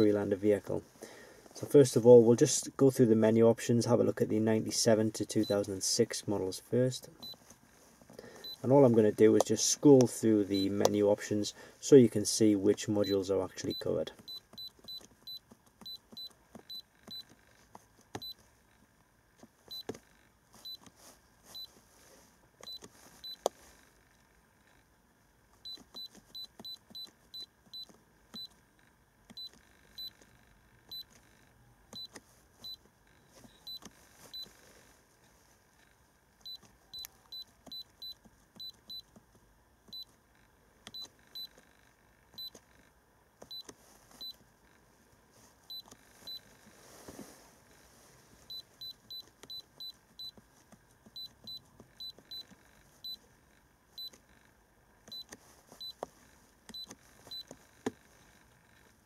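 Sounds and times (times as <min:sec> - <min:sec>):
short high-pitched key beeps: 0:51.2 - 0:53.2.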